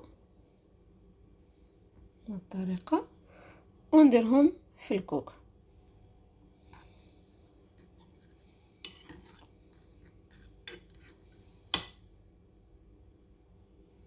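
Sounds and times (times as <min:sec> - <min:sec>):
metal spoon scraping a pot: 0:07.7 - 0:12.0.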